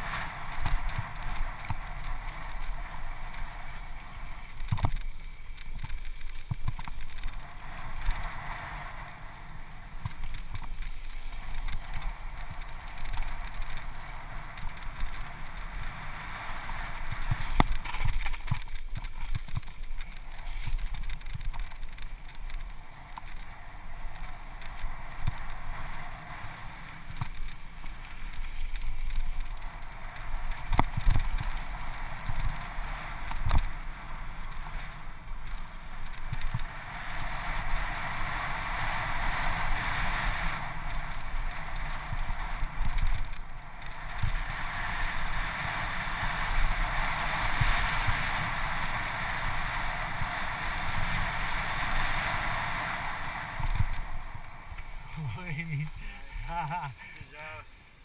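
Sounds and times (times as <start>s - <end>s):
tyres rumbling on dirt: 0.0s - 57.6s
bike knocks and rattles: 4.5s - 8.4s
wind rushing over microphone: 5.8s - 56.6s.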